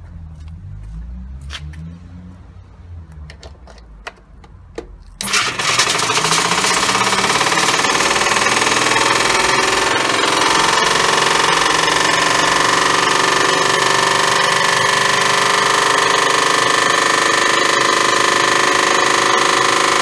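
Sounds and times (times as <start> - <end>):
washing machine spinning whine: 5.2 - 20.0.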